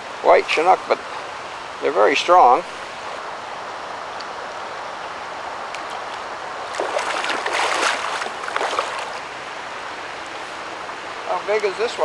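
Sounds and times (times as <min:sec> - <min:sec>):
river current rushing: 0:06.3 - 0:11.3
fish thrashing and splashing: 0:06.6 - 0:09.2.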